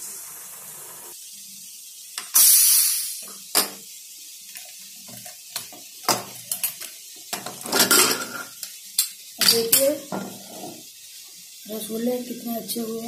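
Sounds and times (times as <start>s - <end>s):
pressure cooker steam hiss: 0.0s - 13.0s
metal lid clicks and clanks: 5.6s - 8.6s.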